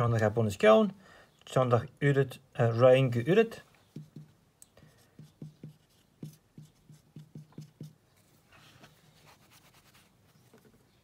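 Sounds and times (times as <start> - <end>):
marker writing on whiteboard: 3.9 - 8.0.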